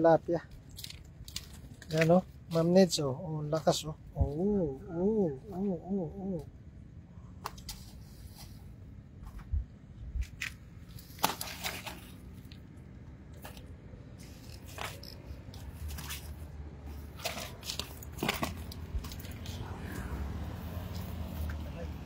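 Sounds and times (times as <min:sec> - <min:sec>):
faint steady hum: 0:00.0 - 0:21.4
wet fish slapping and rustling: 0:10.2 - 0:21.6.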